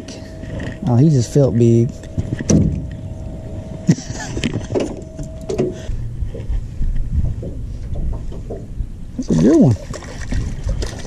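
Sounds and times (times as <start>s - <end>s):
faint steady whine: 0.0s - 11.0s
knocks and clicks on metal boat: 7.2s - 8.8s.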